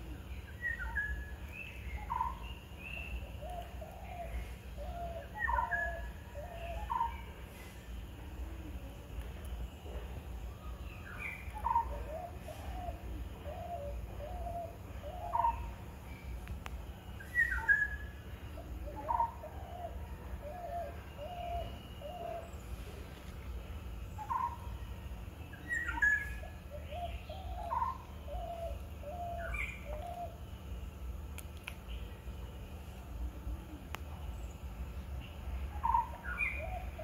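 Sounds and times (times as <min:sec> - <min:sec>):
birds hooting: 0:00.0 - 0:09.0, 0:09.9 - 0:16.4, 0:17.0 - 0:23.0, 0:23.8 - 0:31.2, 0:34.2 - 0:37.0
steady low rumble: 0:21.2 - 0:37.0
sharp bird calls: 0:24.1 - 0:24.8.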